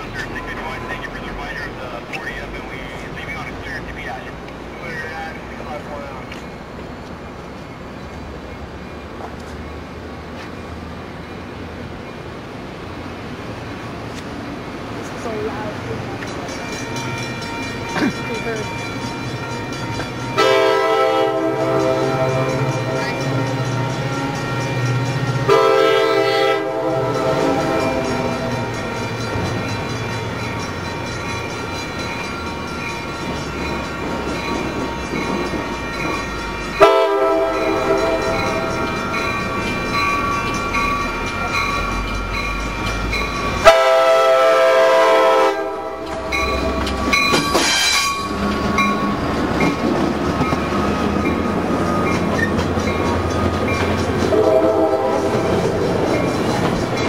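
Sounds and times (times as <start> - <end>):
train rumble: 0.0 - 57.0
locomotive horn blasts: 20.4 - 23.0, 25.4 - 28.6, 36.8 - 38.8, 43.6 - 46.8, 54.3 - 55.7.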